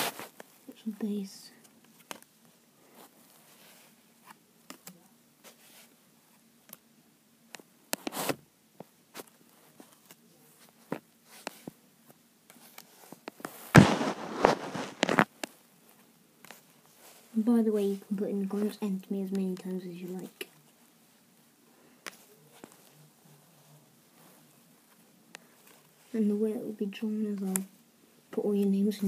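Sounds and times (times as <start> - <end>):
cards rustling and scraping: 9.1 - 11.8, 12.5 - 20.9, 22.0 - 26.2.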